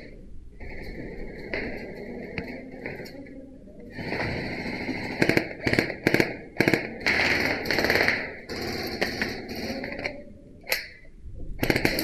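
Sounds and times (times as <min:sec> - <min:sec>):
airsoft gun firing bursts: 0:04.0 - 0:10.0, 0:11.6 - 0:12.0.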